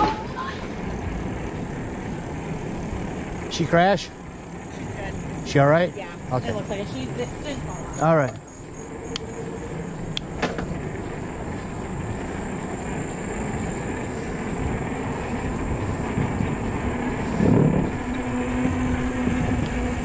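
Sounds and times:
bike tyres rolling over wooden planks: 0.0s - 20.0s
sharp clicks: 9.1s - 9.3s.

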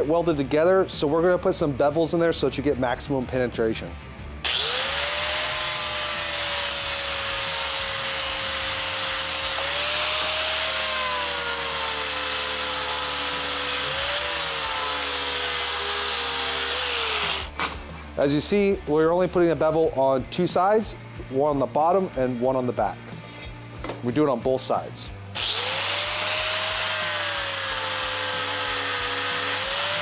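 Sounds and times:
angle grinder grinding steel: 4.4s - 17.5s, 25.4s - 30.0s.

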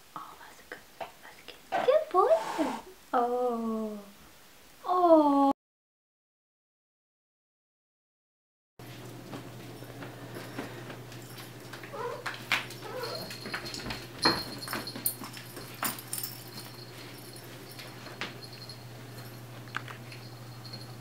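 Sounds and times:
puppy whimpering: 11.9s - 13.4s.

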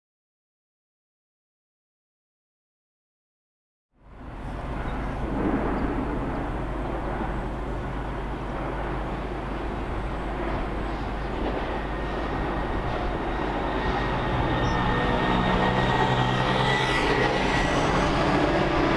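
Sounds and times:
broad rushing noise: 4.0s - 18.9s
distant diesel engine drone: 4.0s - 18.9s.

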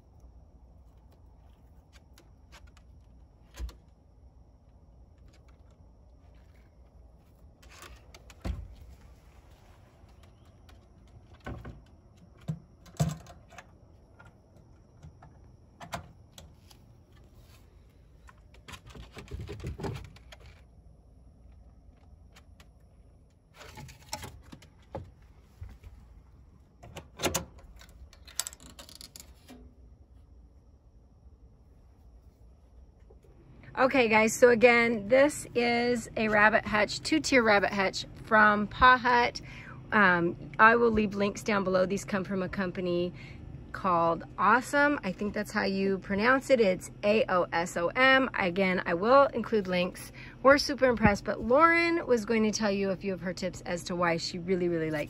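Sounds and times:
metal door latch clicking: 26.8s - 29.0s.

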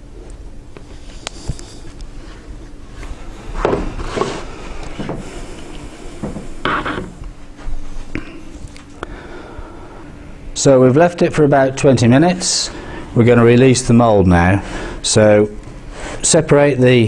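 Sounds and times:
rubbing and knocking handling noises: 0.8s - 5.6s.

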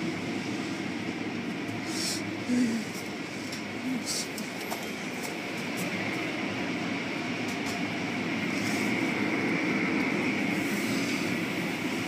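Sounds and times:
machinery rumble and hum: 0.0s - 12.0s.

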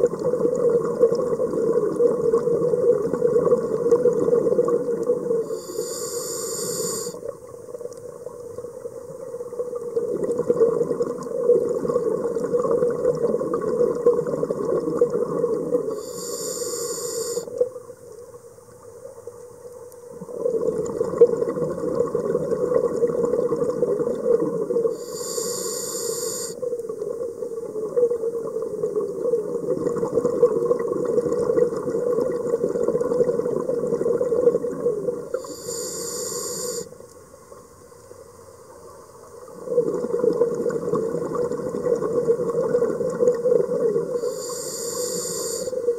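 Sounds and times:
exhaled bubbles rushing: 0.0s - 5.5s, 8.7s - 16.0s, 20.2s - 25.0s, 26.9s - 35.4s, 39.6s - 44.3s
regulator inhalation hiss: 5.4s - 7.3s, 15.9s - 17.6s, 24.9s - 26.7s, 35.3s - 37.0s, 44.1s - 45.9s.

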